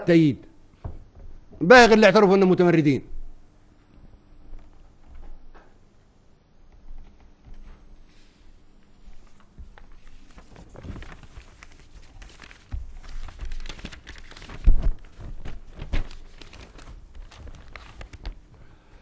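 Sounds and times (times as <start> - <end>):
dull thumps: 0.8 - 1.8
papers rustling: 6.8 - 18.7.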